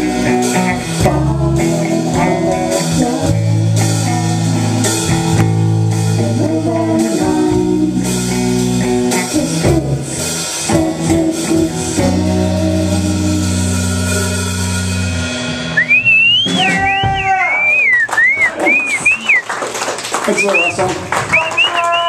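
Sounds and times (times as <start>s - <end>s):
electric guitar chords: 0.0s - 17.3s
bass guitar: 0.0s - 19.4s
drum and cymbal hits: 7.0s - 17.5s.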